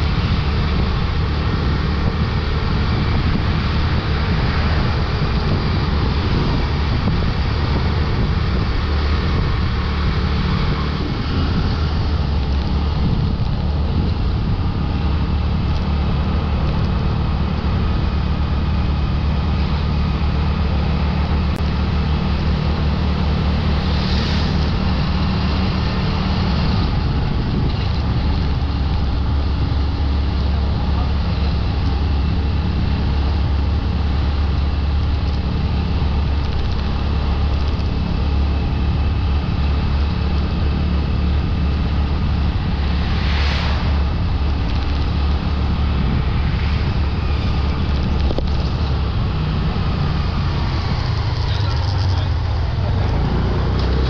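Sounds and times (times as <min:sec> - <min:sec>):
motorbike engine humming: 0:00.0 - 0:54.0
road and wind noise: 0:00.0 - 0:54.0.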